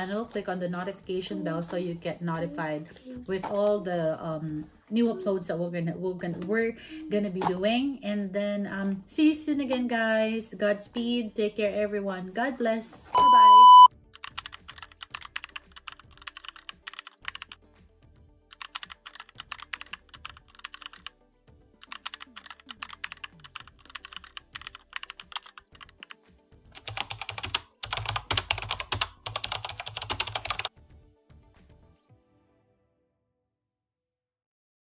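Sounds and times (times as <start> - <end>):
faint background music: 0.0 - 32.6
keyboard typing clicks: 14.2 - 17.6, 18.5 - 21.1, 21.8 - 26.2, 26.8 - 30.7.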